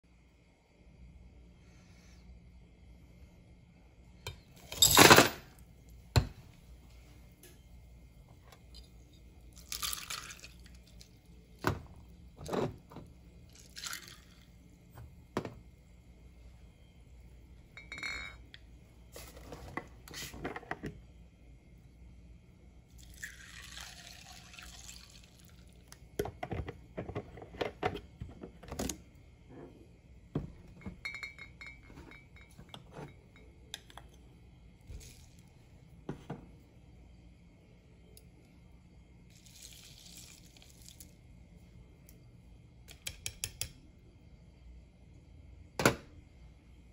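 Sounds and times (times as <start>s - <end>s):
liquid pouring over ice: 9.6s - 11.1s, 13.5s - 14.4s, 23.0s - 25.9s, 39.3s - 41.2s.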